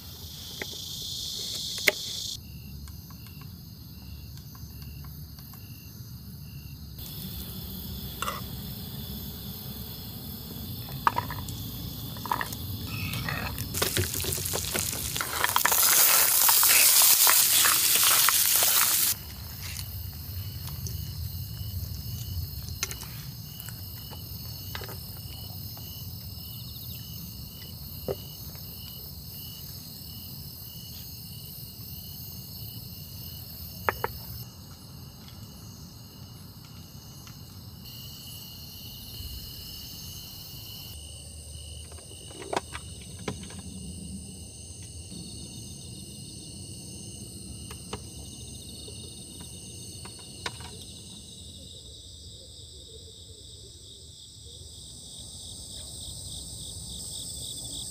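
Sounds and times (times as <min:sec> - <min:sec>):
crickets chirping: 0:00.0 - 0:57.9
high insect hiss: 0:00.0 - 0:57.9
pulsing insect trill: 0:05.6 - 0:19.2.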